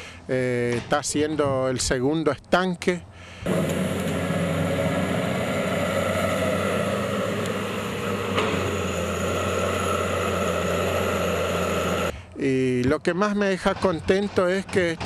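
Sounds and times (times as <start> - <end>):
excavator diesel engine running: 3.4 - 12.1.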